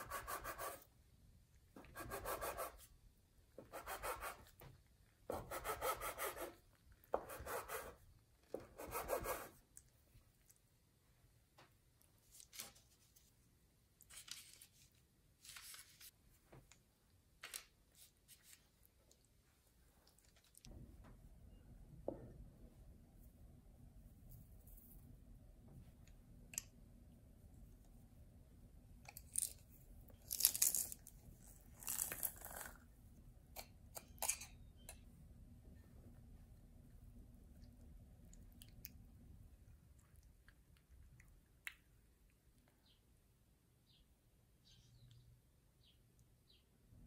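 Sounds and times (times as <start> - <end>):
hands rustling dough and paper: 12.2 - 16.3.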